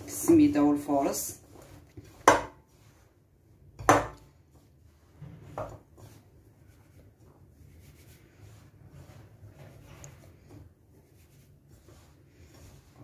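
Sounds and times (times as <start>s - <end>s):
hands rubbing semolina: 0.1s - 3.4s, 4.2s - 13.0s.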